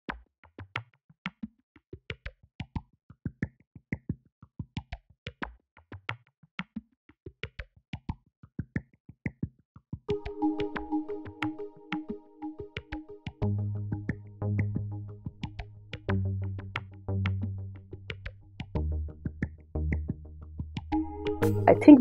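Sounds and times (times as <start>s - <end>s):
held synthesizer chord: 10.1s - 15.8s, 21.0s - 22.0s
clicky percussive music: 10.1s - 22.0s.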